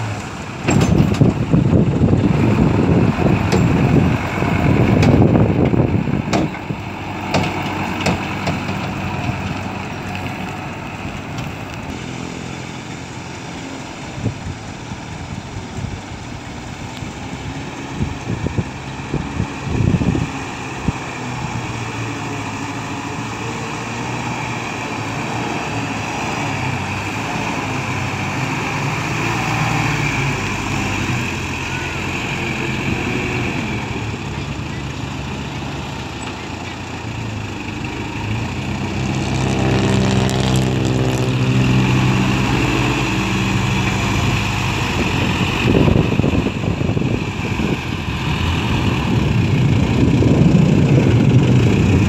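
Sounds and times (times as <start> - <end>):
diesel truck engines running: 0.0 - 52.0.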